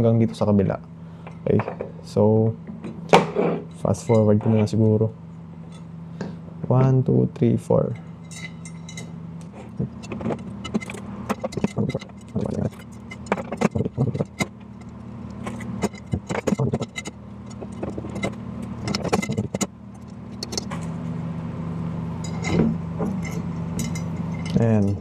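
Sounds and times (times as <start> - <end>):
steady low hum: 0.0 - 25.0
metal spokes clicking: 9.9 - 21.0.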